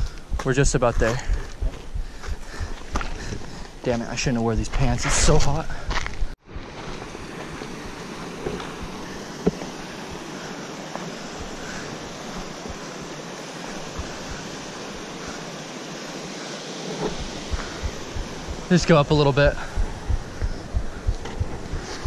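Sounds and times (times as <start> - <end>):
footsteps on rock: 0.2 - 3.8, 4.7 - 9.8
creek water cascading over rock: 6.5 - 20.8.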